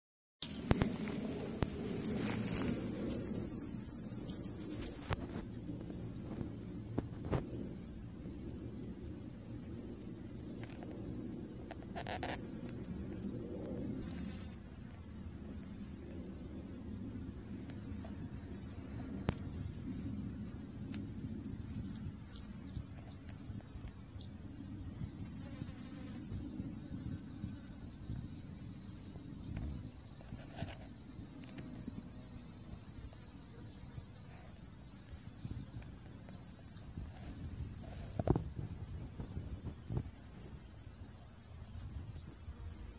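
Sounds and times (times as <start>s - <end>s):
crickets trilling: 0.4s - 42.9s
low rumble of wind: 0.4s - 42.9s.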